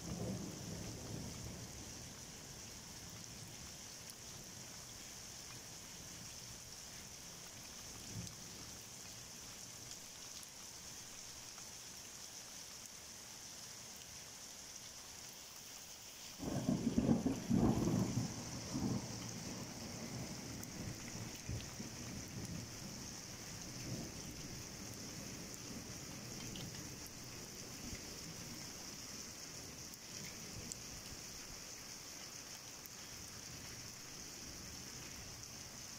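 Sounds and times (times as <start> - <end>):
heavy rain hissing: 0.0 - 35.9
thunder rumbling: 16.4 - 23.0.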